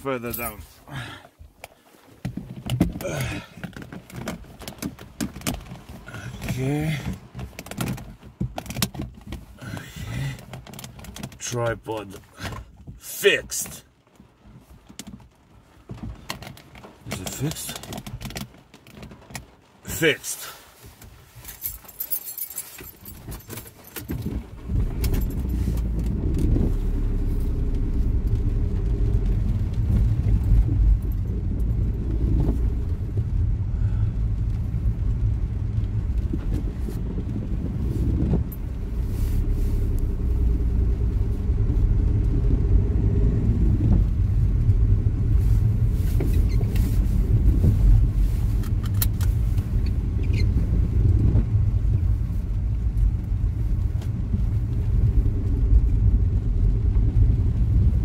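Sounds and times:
small clicks and knocks: 0:03.6 - 0:09.5, 0:14.1 - 0:19.6
car engine and tyre drone: 0:24.5 - 0:58.0.

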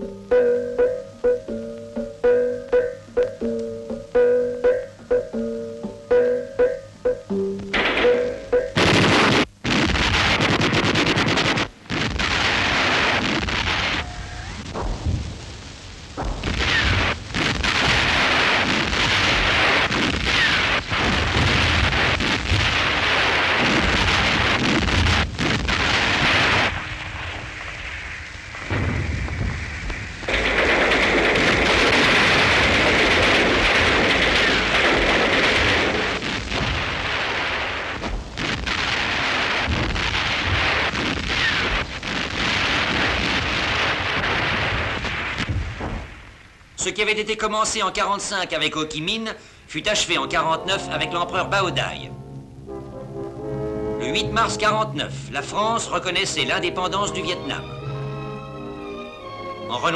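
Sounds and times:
explosions: 0:07.7 - 0:46.6
rifle and machine-gun fire: 0:08.8 - 0:14.0, 0:16.2 - 0:27.7, 0:30.2 - 0:46.1.

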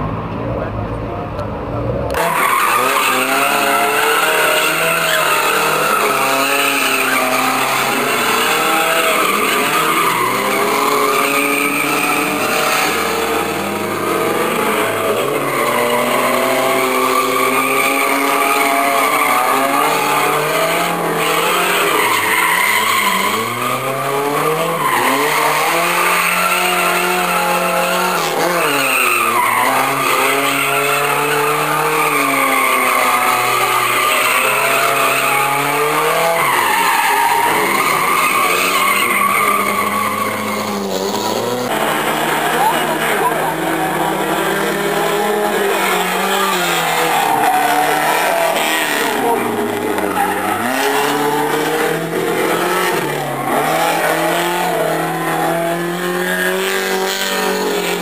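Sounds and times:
car engine revving: 0:00.0 - 0:58.0
tyres squealing: 0:02.1 - 0:58.0.

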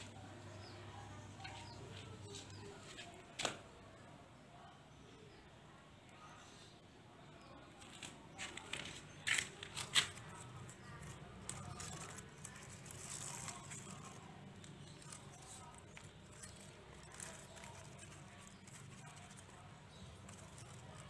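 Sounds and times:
rustling plant leaves: 0:07.8 - 0:21.0.

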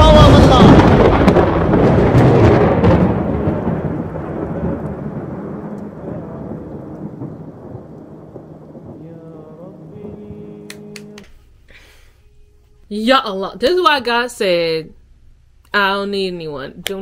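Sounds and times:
thunder clap and rumble: 0:00.0 - 0:10.7.

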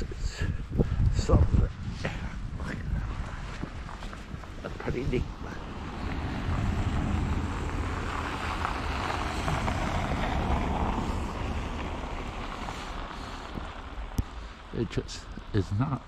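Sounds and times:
wind rumble on microphone: 0:00.0 - 0:16.0
car tyres hissing through slush: 0:02.4 - 0:16.0.

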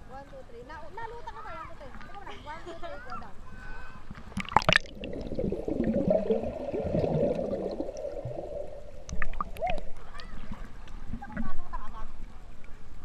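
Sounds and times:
sharp water splashes: 0:04.3 - 0:10.9
muffled underwater bubbling: 0:04.4 - 0:12.0.

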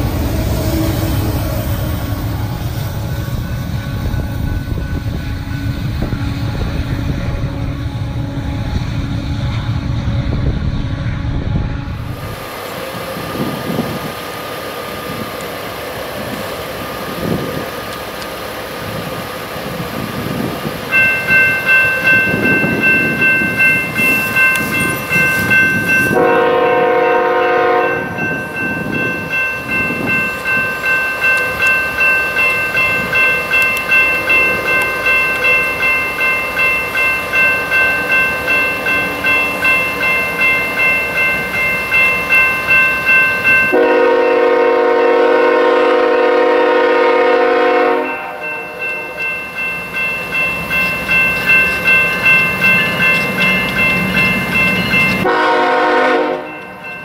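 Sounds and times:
freight train rumbling: 0:00.0 - 0:57.0
train wheels clacking: 0:14.9 - 0:44.4, 0:48.0 - 0:55.6
warning bell ringing: 0:20.9 - 0:44.6, 0:47.7 - 0:55.3, 0:56.2 - 0:57.0
locomotive air horn: 0:26.1 - 0:28.1, 0:43.7 - 0:48.6, 0:55.2 - 0:56.5.

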